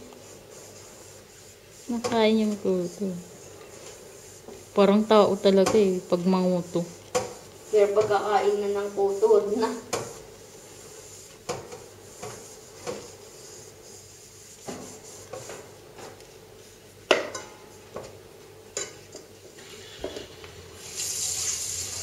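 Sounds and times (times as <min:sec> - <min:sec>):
tap water running: 0:19.6 - 0:22.0.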